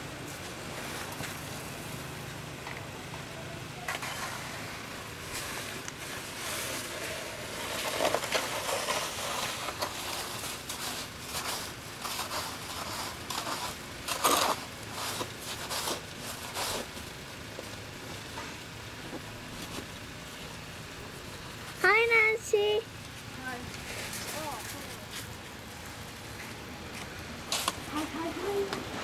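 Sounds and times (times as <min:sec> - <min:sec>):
snow scraping on brick: 0:03.9 - 0:17.0, 0:23.4 - 0:25.4.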